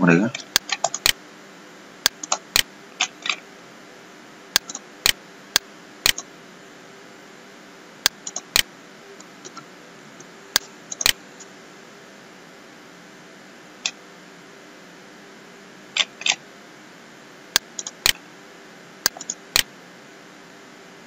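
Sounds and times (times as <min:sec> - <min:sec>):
faint steady hum: 0:00.0 - 0:21.0
computer mouse clicking: 0:00.4 - 0:01.2, 0:02.1 - 0:03.4, 0:04.6 - 0:05.2, 0:06.0 - 0:06.3, 0:08.1 - 0:08.7, 0:10.5 - 0:11.2, 0:17.6 - 0:18.2, 0:19.1 - 0:19.7.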